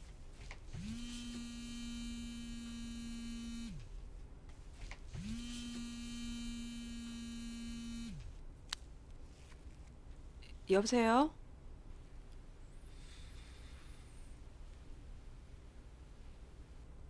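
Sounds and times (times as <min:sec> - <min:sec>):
phone vibrating buzz: 0:00.7 - 0:03.9, 0:05.1 - 0:08.4.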